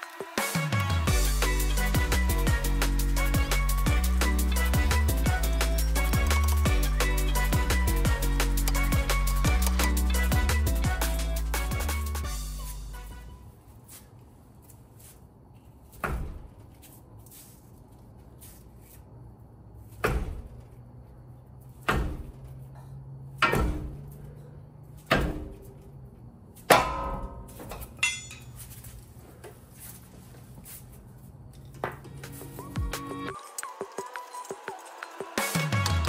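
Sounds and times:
hammer striking metal: 0:23.4 - 0:24.0, 0:26.7 - 0:28.5.

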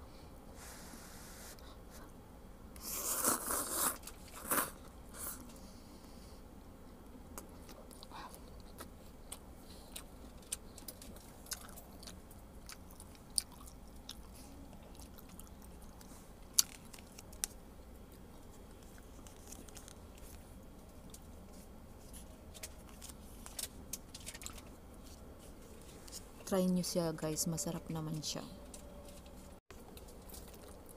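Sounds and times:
person chewing noodles: 0:02.8 - 0:05.8, 0:07.3 - 0:26.2, 0:29.8 - 0:30.9.

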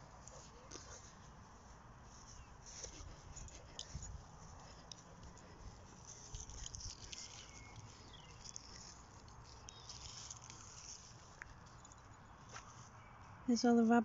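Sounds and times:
soft footsteps on grass: 0:00.0 - 0:14.0.

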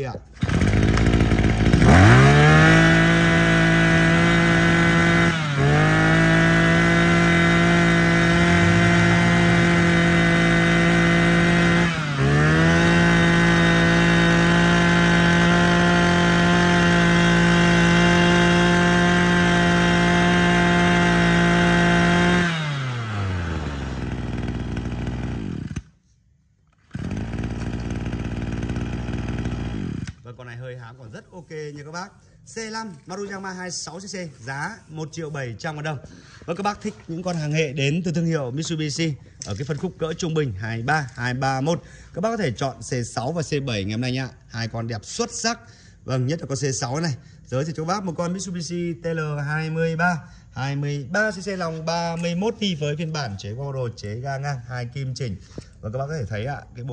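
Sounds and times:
brush cutter engine revving: 0:00.2 - 0:26.0, 0:26.7 - 0:30.3.

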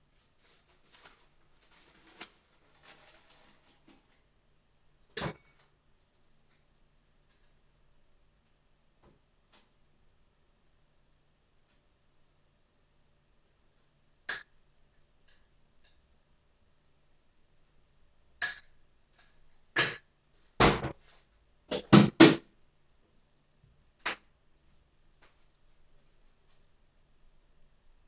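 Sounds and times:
kitchen things knocking and clattering: 0:05.1 - 0:05.7, 0:20.6 - 0:21.0.

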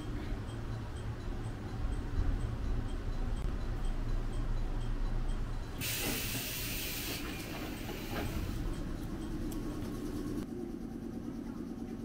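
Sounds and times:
train car low rumble: 0:00.0 - 0:12.0
compressed air hiss: 0:05.8 - 0:08.4.

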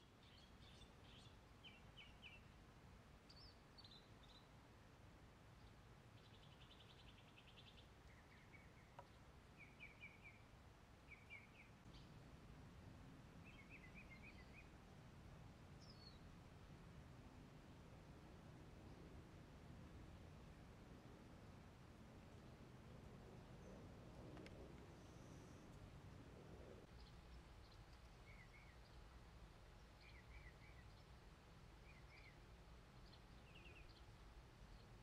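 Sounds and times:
faint birds chirping: 0:00.0 - 0:35.0
low background rumble: 0:11.8 - 0:35.0.

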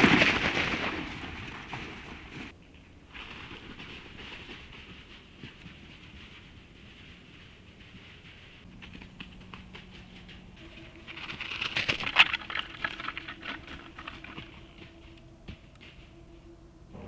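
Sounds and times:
hooves crunching through dry leaves: 0:00.0 - 0:16.8.

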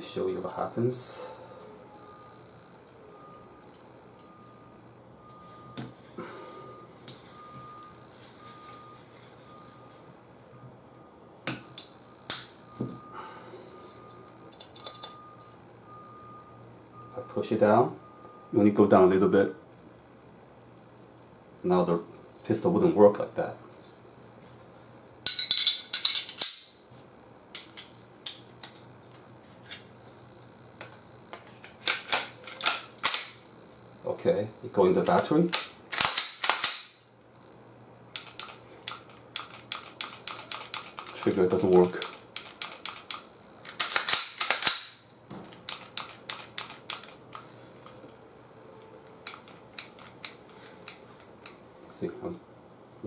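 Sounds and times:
metallic pistol parts clicking: 0:35.0 - 0:37.0, 0:38.2 - 0:47.4, 0:49.2 - 0:51.6
pistol slide clicks: 0:35.6 - 0:36.9, 0:43.0 - 0:45.0.

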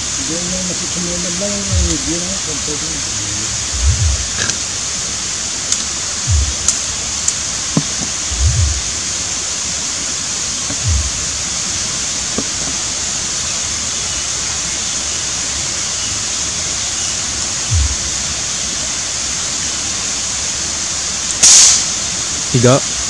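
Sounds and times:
high outdoor hiss: 0:00.0 - 0:23.0
low thumps: 0:01.4 - 0:05.0, 0:06.2 - 0:07.0, 0:07.7 - 0:09.1, 0:10.6 - 0:11.6, 0:17.6 - 0:18.2.

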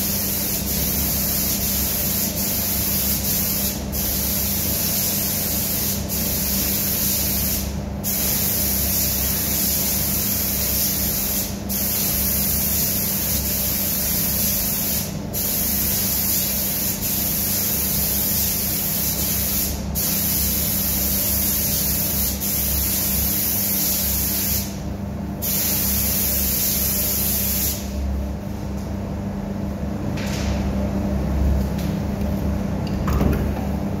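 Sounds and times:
spray gun hissing: 0:00.0 - 0:24.8, 0:25.4 - 0:27.9
low machine hum: 0:24.6 - 0:34.0.

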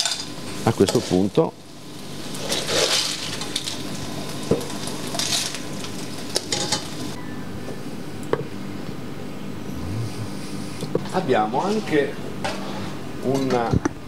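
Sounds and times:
sauce sizzling in a pan: 0:00.1 - 0:07.2.

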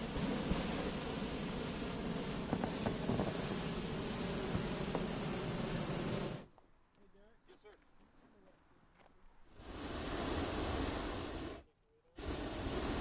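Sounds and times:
propane burner firing: 0:00.0 - 0:06.5, 0:09.5 - 0:11.6, 0:12.2 - 0:13.0.

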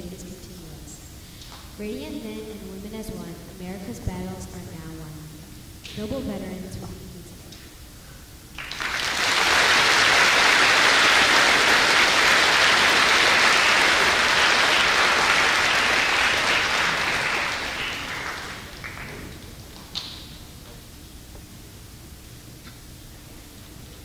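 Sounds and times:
audience applauding: 0:08.6 - 0:20.2.

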